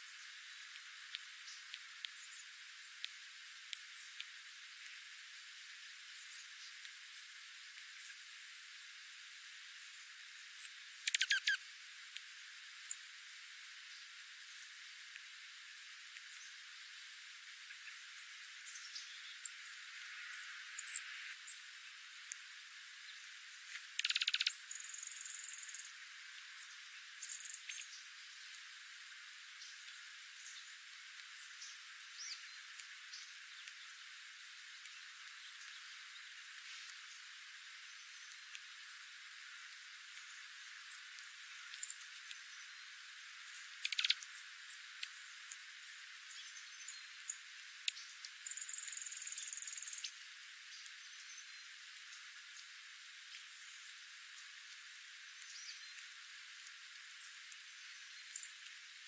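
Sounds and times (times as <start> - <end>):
bird calling high chips: 10.6 - 11.6, 23.7 - 25.9, 27.2 - 28.0, 43.8 - 44.3
bird pulsed twittering: 10.6 - 11.6, 17.6 - 21.8, 23.0 - 28.8, 29.5 - 39.0, 40.2 - 52.7, 55.4 - 59.0
bird sharp clicks: 11.0 - 11.6, 23.7 - 25.9, 43.8 - 44.3.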